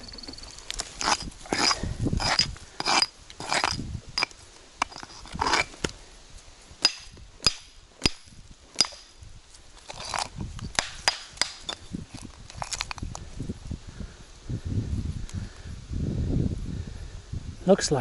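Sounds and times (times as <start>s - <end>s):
rock pick scraping stone: 0.3s - 6.0s, 6.8s - 13.2s.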